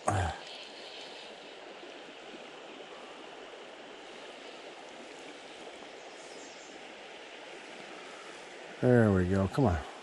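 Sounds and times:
creek water flowing: 0.0s - 10.0s.

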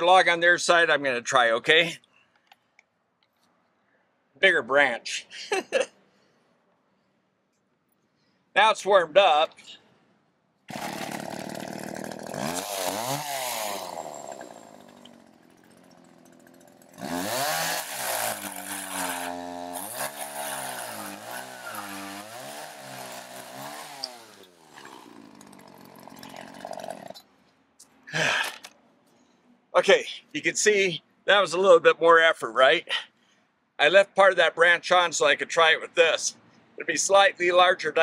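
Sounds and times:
chainsaw idling: 10.7s - 27.2s
chainsaw cutting wood: 10.7s - 27.3s.

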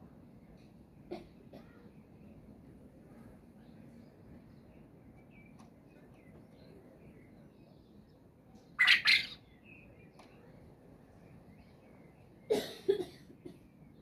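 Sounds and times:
quail calling: 8.8s - 9.4s.

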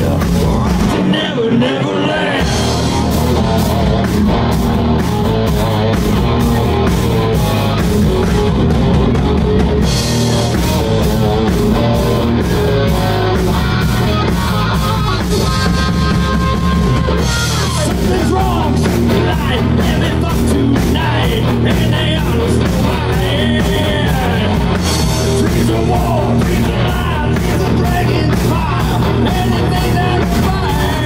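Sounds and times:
drum kit with cymbal beat: 0.0s - 1.3s, 2.3s - 31.0s
man singing: 0.0s - 3.8s, 17.5s - 31.0s
distorted electric guitars: 0.0s - 31.0s.

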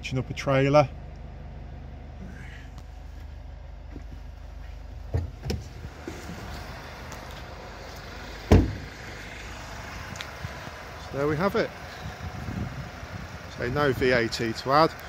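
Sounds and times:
diesel engine idling: 0.0s - 15.0s
car door slamming: 5.1s - 6.5s, 8.4s - 8.9s.

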